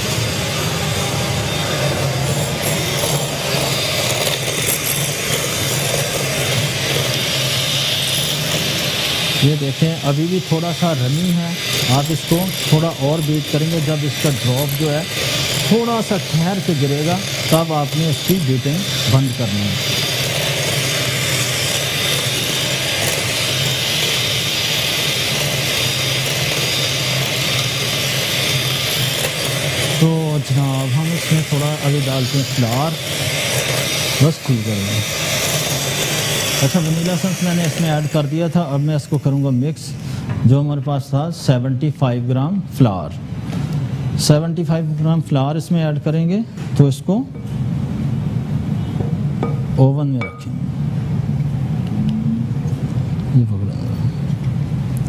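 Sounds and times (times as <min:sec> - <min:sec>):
electric hand mixer whipping batter: 0:00.0 - 0:41.0.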